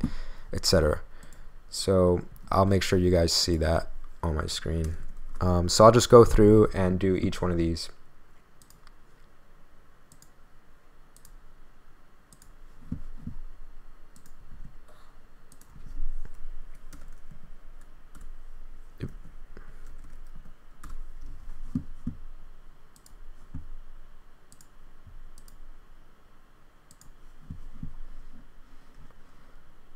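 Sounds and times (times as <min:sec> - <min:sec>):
computer mouse clicks: 0:08.6 - 0:09.0, 0:10.1 - 0:10.4, 0:11.2 - 0:11.4, 0:12.3 - 0:13.4, 0:14.1 - 0:14.4, 0:15.5 - 0:18.3, 0:22.9 - 0:23.7, 0:24.5 - 0:24.7, 0:25.3 - 0:25.6, 0:26.9 - 0:27.9.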